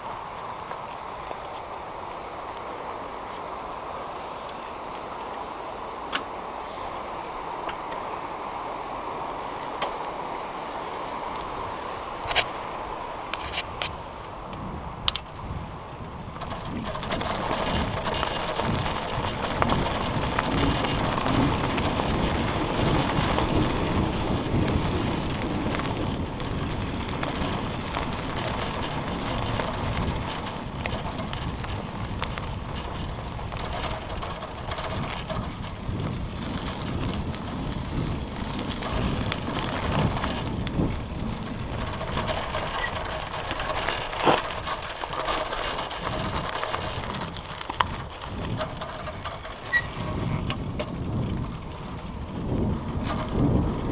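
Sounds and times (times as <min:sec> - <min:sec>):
bicycle rolling noise: 0:00.0 - 0:53.9
bicycle drivetrain rattling: 0:14.7 - 0:53.9.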